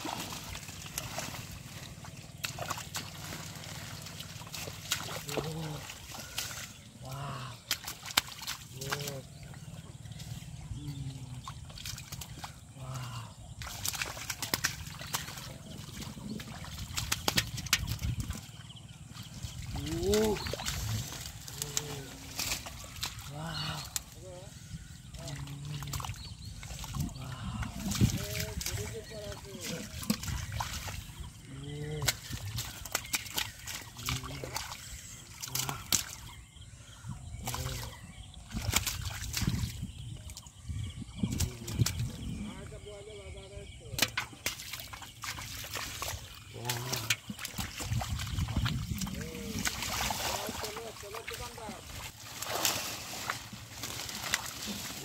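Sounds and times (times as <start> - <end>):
sharp wet slaps: 0.0 - 9.3, 11.7 - 12.6, 13.5 - 18.6, 19.2 - 24.2, 25.2 - 36.4, 37.4 - 39.8, 43.9 - 55.0
splashing in shallow muddy water: 0.0 - 55.0.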